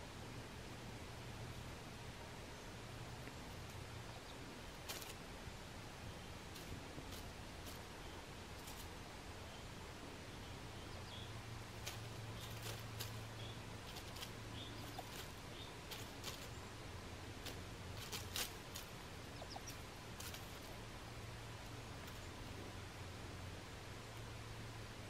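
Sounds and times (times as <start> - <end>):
dry leaves rustling and crackling: 4.6 - 5.3, 6.4 - 9.1, 11.3 - 22.8.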